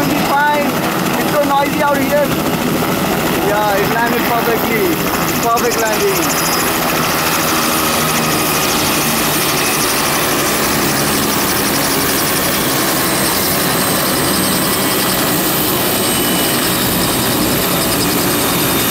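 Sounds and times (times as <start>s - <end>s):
helicopter rotor rush: 0.0s - 18.9s
helicopter turbine whine: 0.0s - 18.9s.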